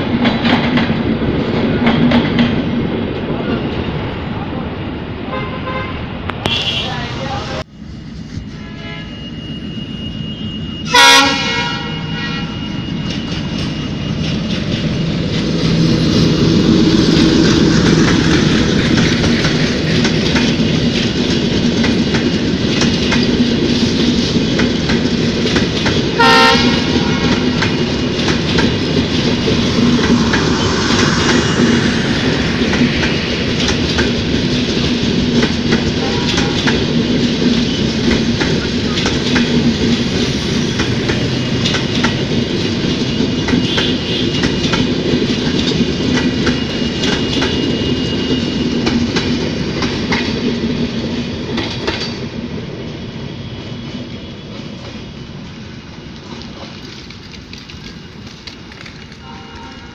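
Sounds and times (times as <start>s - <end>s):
train wheels clattering over rail joints: 0.0s - 2.8s, 13.0s - 52.5s, 56.2s - 59.3s
train horn blasts: 5.3s - 7.1s, 8.4s - 9.3s, 10.8s - 12.6s, 26.2s - 27.5s, 36.0s - 36.8s, 43.6s - 44.5s, 59.2s - 59.9s.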